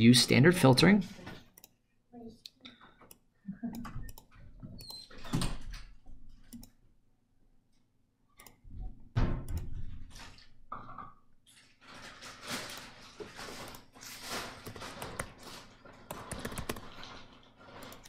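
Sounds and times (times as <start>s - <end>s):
computer mouse clicks: 2.4s - 5.0s, 6.5s - 6.8s, 8.4s - 8.6s, 16.1s - 16.9s, 17.8s - 18.0s.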